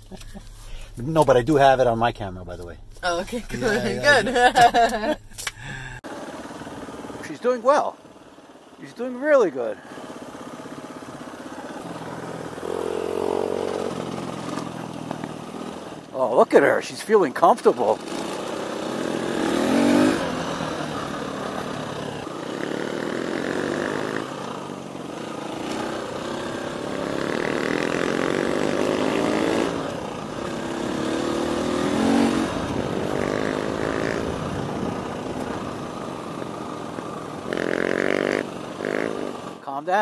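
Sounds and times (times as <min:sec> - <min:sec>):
dirt bike engine revving: 0:09.1 - 0:16.0, 0:17.8 - 0:39.6.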